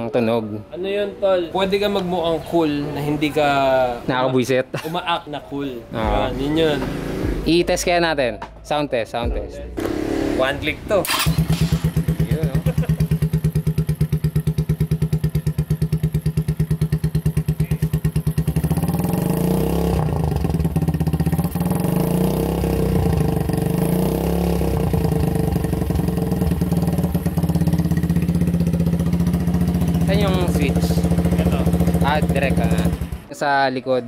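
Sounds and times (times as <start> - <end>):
motorcycle engine idling and revving: 5.9 - 7.6, 9.8 - 33.3.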